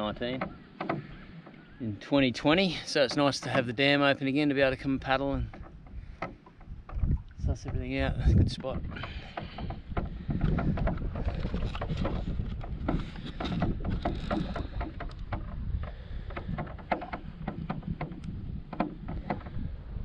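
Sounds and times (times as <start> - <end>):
water splashing against kayak hull: 0.0 - 20.0
wind rumble on microphone: 4.6 - 20.0
paddle splashes and drips: 5.4 - 7.9, 8.7 - 19.6.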